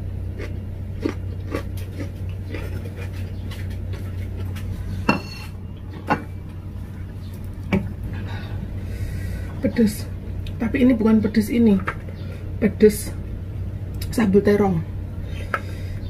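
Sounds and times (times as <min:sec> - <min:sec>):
steady low hum: 0:00.0 - 0:16.0
ceramic plate clinking on stone: 0:05.0 - 0:05.5.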